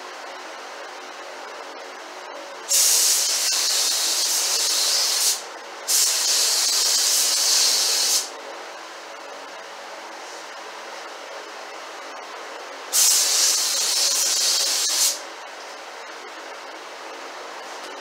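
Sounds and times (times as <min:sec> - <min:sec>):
paint spray gun hissing: 0:02.7 - 0:08.3, 0:12.9 - 0:15.2.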